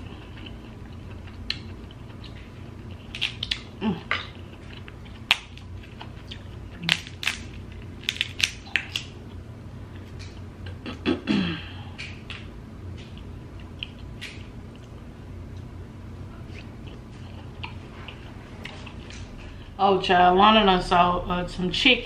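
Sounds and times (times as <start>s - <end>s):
crab shell cracking: 3.0s - 9.2s.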